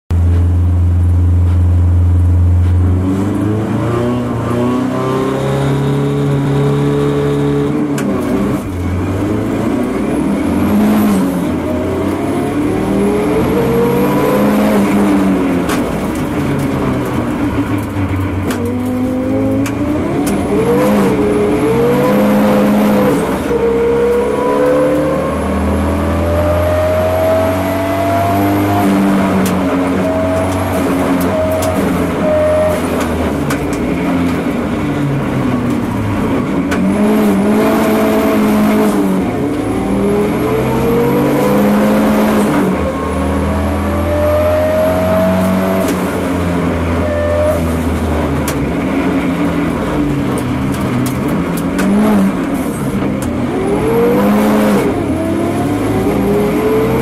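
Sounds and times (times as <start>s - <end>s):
race car engine accelerating: 0.3s - 57.0s.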